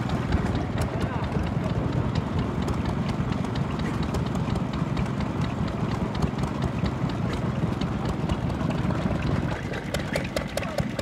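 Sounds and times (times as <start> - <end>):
rapid uneven clicking: 0.0 - 11.0
stationary engine chugging: 0.0 - 11.0.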